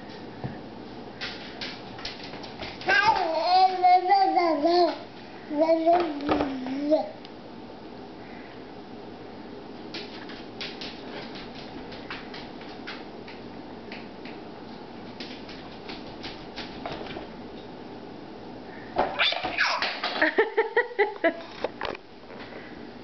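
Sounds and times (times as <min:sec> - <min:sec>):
baby squealing and laughing: 0:19.2 - 0:20.0.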